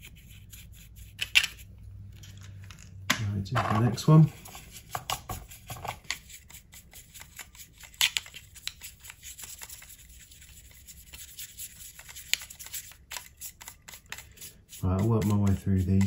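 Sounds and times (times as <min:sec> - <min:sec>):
stiff brush scrubbing plastic: 0:03.8 - 0:16.0.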